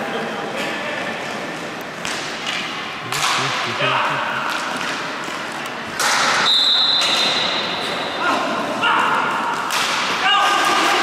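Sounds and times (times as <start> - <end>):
hockey sticks hitting ball: 2.0 - 11.0
players shouting: 3.1 - 4.5
high steady whistle: 6.4 - 7.5.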